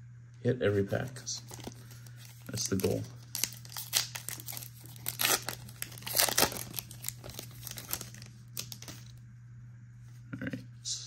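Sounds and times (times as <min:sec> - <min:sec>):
plastic wrapper crinkling and tearing: 0:01.3 - 0:09.2.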